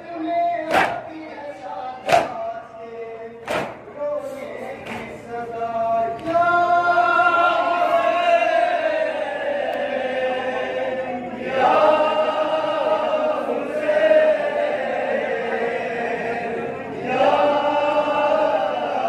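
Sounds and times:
man chanting a lament: 0.0s - 8.9s.

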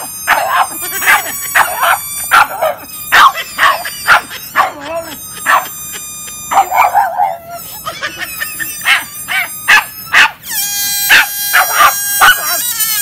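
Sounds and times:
high whine: 0.0s - 12.6s
dog yelping: 0.0s - 13.0s
dog barking: 0.3s - 4.8s, 5.5s - 5.7s, 6.5s - 7.4s, 8.8s - 10.4s, 11.1s - 12.6s.

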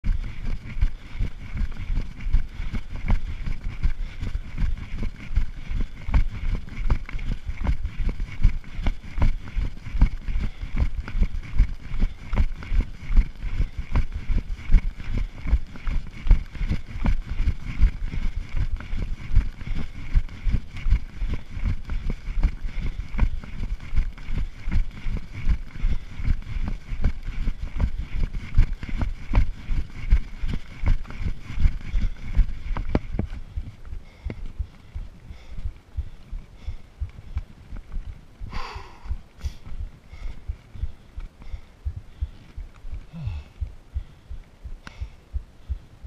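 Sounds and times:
faint high hum: 22.2s - 46.0s.

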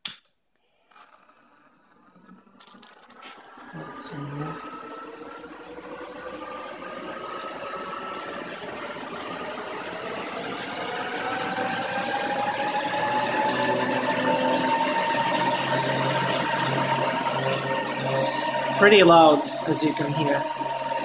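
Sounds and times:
cooling fans whining: 0.9s - 21.0s.

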